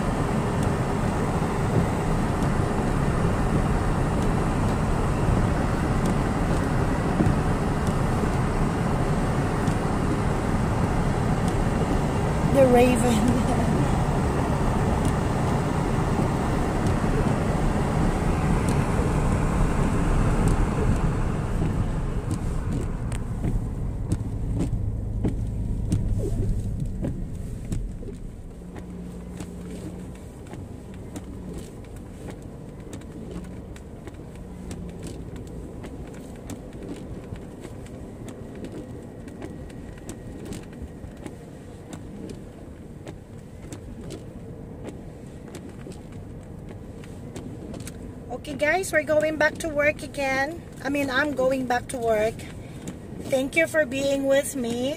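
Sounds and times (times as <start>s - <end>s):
car road and engine noise: 0.0s - 54.9s
faint clicks and knocks: 20.4s - 48.1s.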